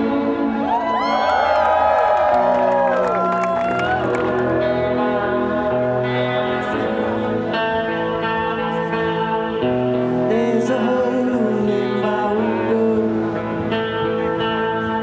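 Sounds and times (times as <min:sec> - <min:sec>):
rock band playing live: 0:03.1 - 0:15.0
person singing: 0:09.9 - 0:14.3.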